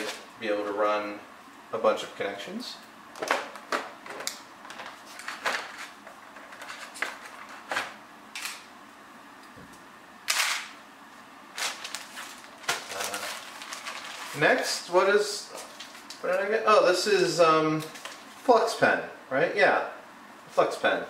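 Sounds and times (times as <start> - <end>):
plastic bags crinkling: 11.5 - 14.8, 15.5 - 16.2.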